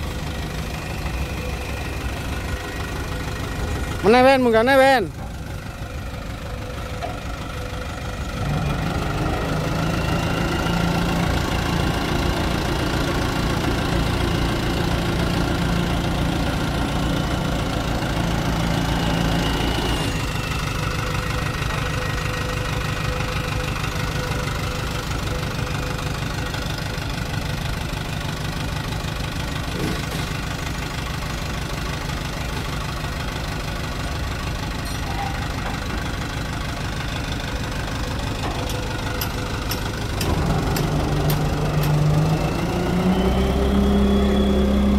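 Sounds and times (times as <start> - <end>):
truck engine running hard: 0.0 - 44.9.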